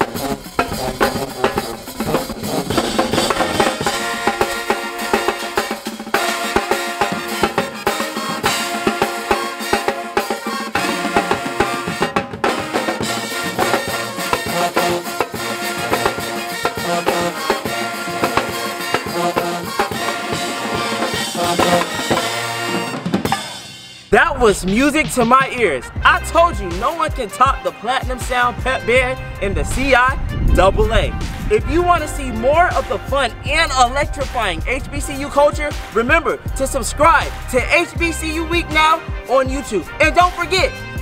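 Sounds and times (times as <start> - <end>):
saxophones: 0.0 - 29.4
drum kit: 0.0 - 41.0
marching tenor drums: 0.0 - 41.0
trumpets: 0.0 - 41.0
sousaphones: 12.8 - 29.2.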